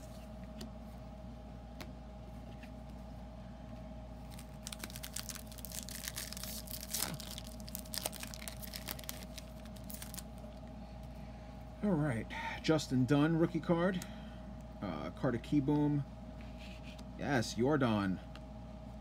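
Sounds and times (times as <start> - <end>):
foil card pack tearing and crinkling: 4.2 - 10.3.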